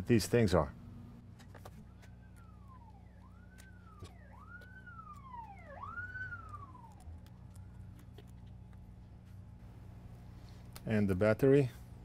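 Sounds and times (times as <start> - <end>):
steady low hum: 0.0 - 12.0
faint siren wailing: 1.2 - 9.6.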